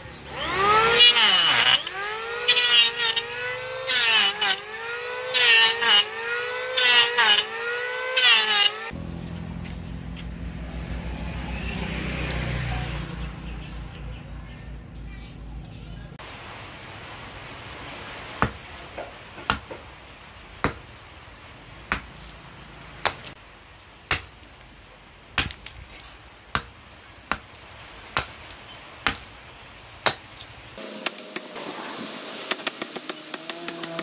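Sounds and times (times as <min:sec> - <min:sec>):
blade chopping wood: 0:18.4 - 0:18.6, 0:19.4 - 0:19.9, 0:21.9 - 0:22.3, 0:23.0 - 0:23.4, 0:24.1 - 0:24.4, 0:25.4 - 0:25.8, 0:26.5 - 0:27.6, 0:28.2 - 0:29.3, 0:30.0 - 0:31.6, 0:32.5 - 0:34.0.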